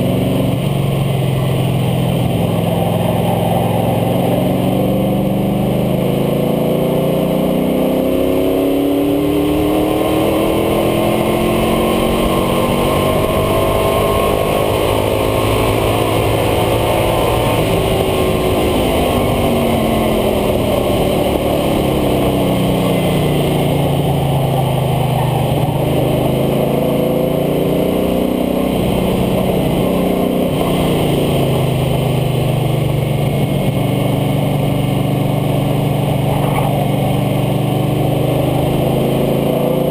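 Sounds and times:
truck engine driven hard: 0:00.0 - 0:39.9
tyre noise: 0:36.2 - 0:37.1.

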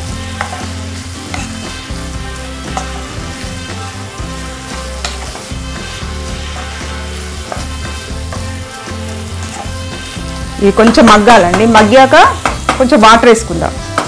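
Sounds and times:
greens sizzling in oil: 0:00.0 - 0:14.0
spatula tapping and scraping pan: 0:00.4 - 0:00.7, 0:01.3 - 0:01.6, 0:05.0 - 0:05.5, 0:07.4 - 0:08.5, 0:12.4 - 0:13.0.

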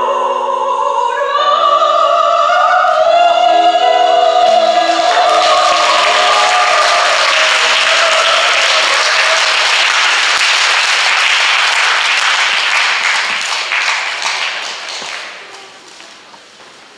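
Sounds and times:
audience applauding: 0:04.4 - 0:16.0.

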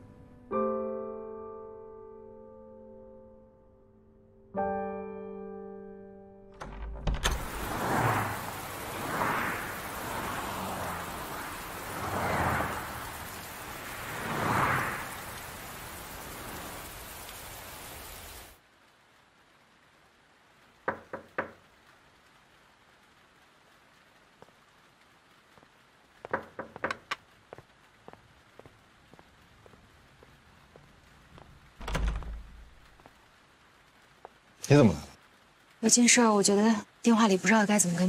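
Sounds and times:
heavy rain on pavement: 0:07.2 - 0:38.0
knocking at a door: 0:20.9 - 0:21.6, 0:26.2 - 0:27.2.

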